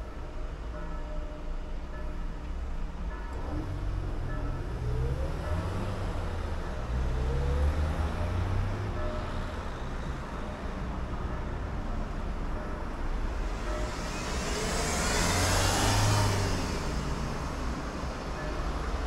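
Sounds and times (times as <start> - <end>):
low traffic rumble: 0.0 - 19.0
vehicles passing: 1.8 - 19.0
engine revving: 14.3 - 17.5.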